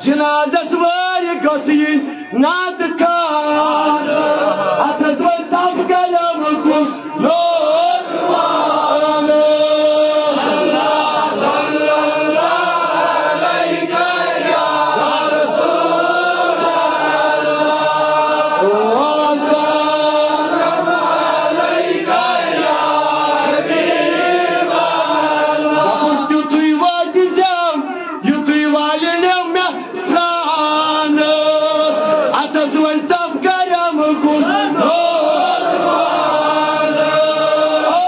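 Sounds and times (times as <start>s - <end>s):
man chanting: 0.0s - 23.3s, 24.4s - 38.0s.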